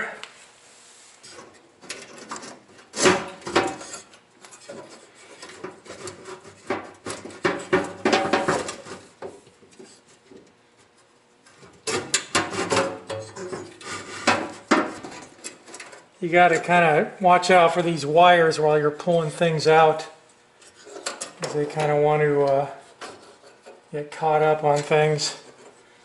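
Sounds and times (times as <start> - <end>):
metal burners scraping and clinking: 1.2 - 9.2, 11.4 - 18.1, 20.6 - 25.9.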